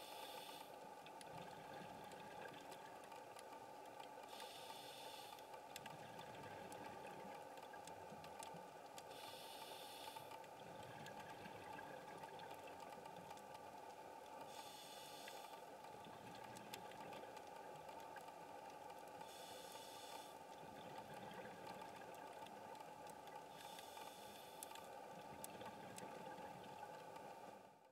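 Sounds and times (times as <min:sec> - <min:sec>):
faint clicks: 0:00.2 - 0:27.5.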